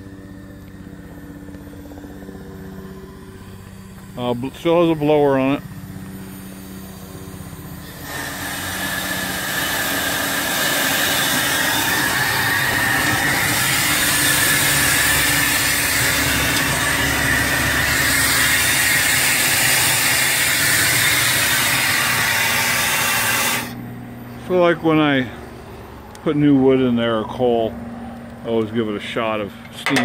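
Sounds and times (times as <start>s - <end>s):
steam hissing: 7.8s - 23.7s.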